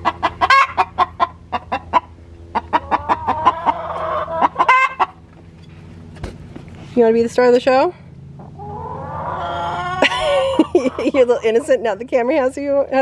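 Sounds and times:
hen clucking: 0.0 - 5.2, 8.4 - 12.0
hen squawking: 0.3 - 5.1, 8.6 - 11.3.

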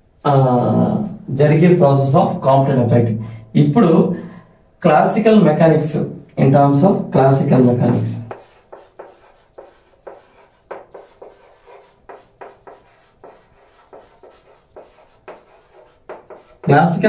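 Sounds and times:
chalk writing on blackboard: 7.3 - 17.0.

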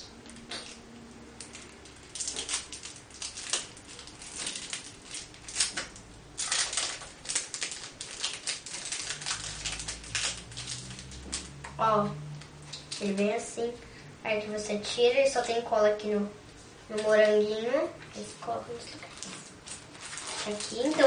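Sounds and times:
plastic packet crinkling: 0.3 - 11.7, 18.7 - 21.0.

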